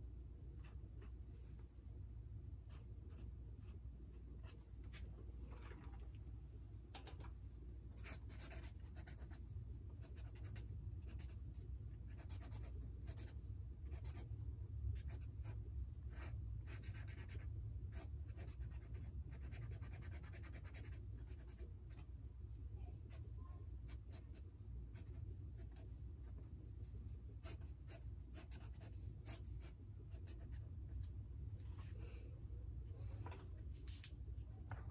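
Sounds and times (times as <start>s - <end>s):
faint low hum: 0.0s - 34.9s
pen scratching on paper: 8.0s - 9.4s, 10.0s - 14.3s, 15.0s - 22.0s, 23.9s - 26.4s, 27.4s - 30.6s.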